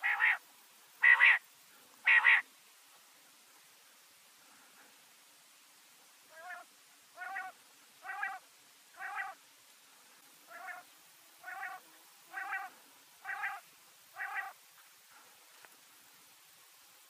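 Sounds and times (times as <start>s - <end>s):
quail calling: 0.0s - 0.4s, 1.0s - 1.4s, 2.0s - 2.4s, 6.3s - 8.4s, 9.0s - 9.4s, 10.5s - 14.6s.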